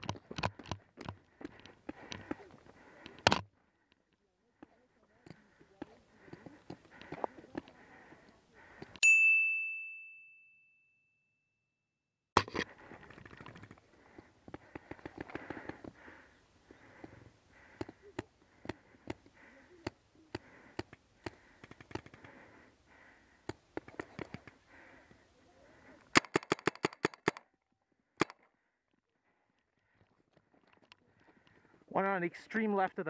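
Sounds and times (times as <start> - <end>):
rapid paintball shots: 26.1 - 27.4.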